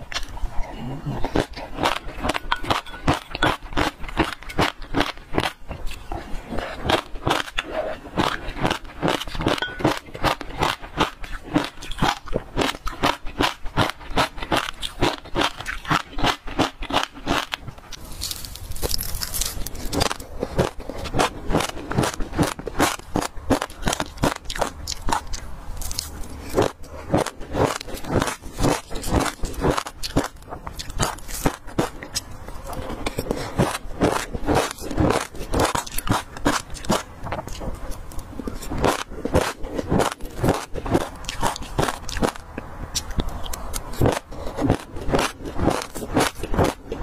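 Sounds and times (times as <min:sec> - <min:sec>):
seeds crunching while chewed: 0:00.0 - 0:47.0.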